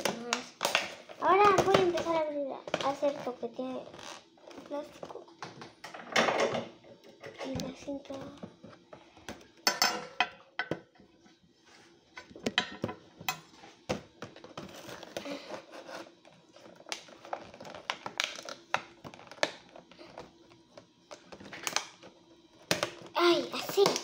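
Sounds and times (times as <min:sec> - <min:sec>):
plastic packaging crinkling: 0:14.6 - 0:24.0.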